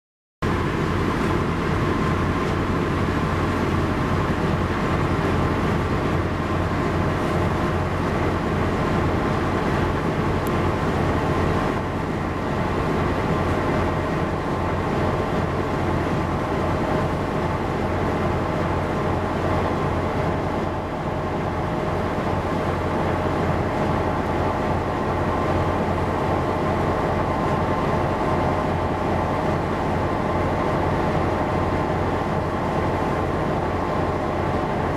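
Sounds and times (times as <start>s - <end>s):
ship engine drone: 0.4s - 34.9s.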